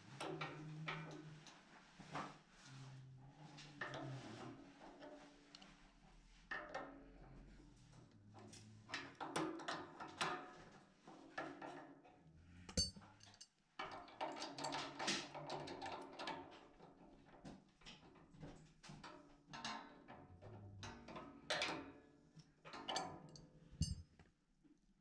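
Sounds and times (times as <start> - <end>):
sharp ringing clink: 12.7 - 13.0
metal tools clinking on valve: 12.7 - 13.5, 22.8 - 24.1.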